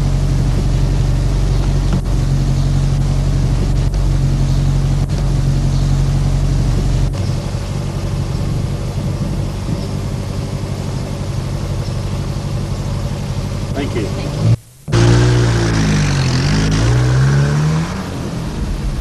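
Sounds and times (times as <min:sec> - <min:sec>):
car engine idling: 0:00.0 - 0:17.0, 0:17.8 - 0:19.0.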